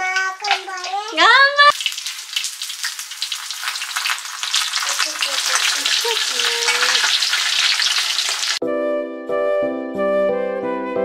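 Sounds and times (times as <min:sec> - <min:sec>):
oil crackling and sizzling: 0:00.0 - 0:08.6.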